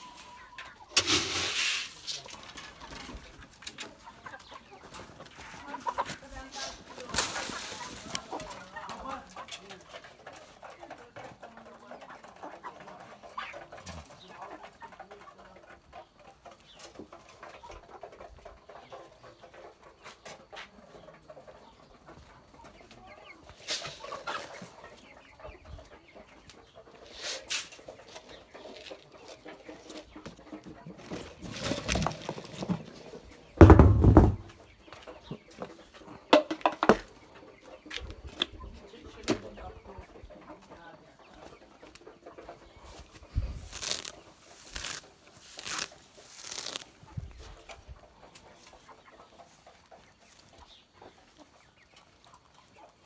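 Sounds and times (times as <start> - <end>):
chickens clucking softly: 0.0 - 53.0.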